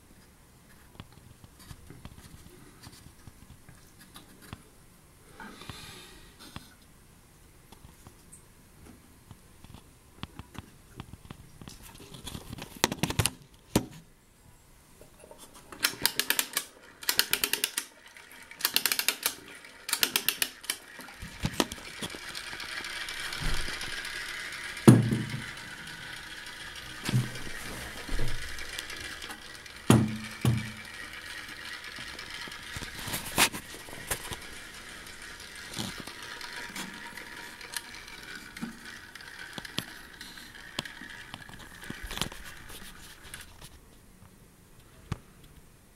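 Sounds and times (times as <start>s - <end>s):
clockwork key winding ratchet: 15.8s - 18.0s, 18.6s - 20.9s
clockwork motor whirring: 15.8s - 43.4s.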